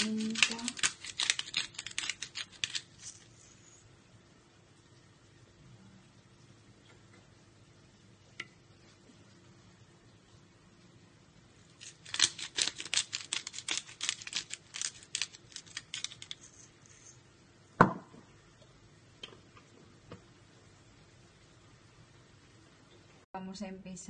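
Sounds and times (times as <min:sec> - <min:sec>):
pepper grinder crunching: 0:00.0 - 0:03.3, 0:11.8 - 0:16.6.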